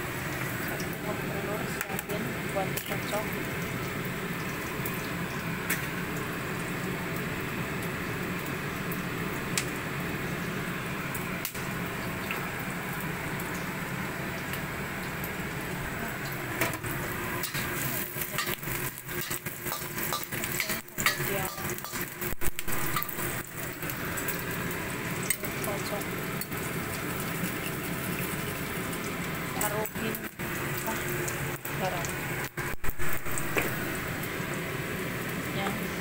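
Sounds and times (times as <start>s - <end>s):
garlic sizzling in oil: 0.0s - 36.0s.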